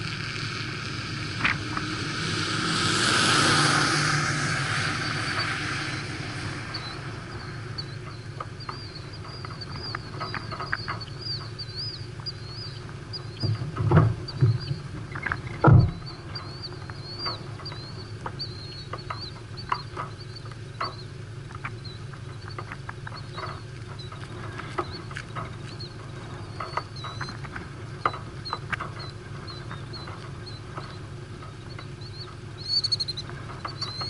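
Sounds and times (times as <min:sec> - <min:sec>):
steady low rumble: 0:00.0 - 0:34.0
birds chirping: 0:01.3 - 0:34.0
soft ticks: 0:07.8 - 0:15.5.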